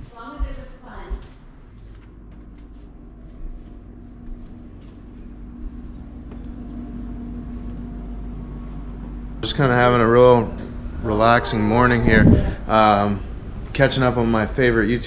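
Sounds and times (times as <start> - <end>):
steady hum: 0.0 - 15.0
jet airliner rumbling overhead: 5.4 - 15.0.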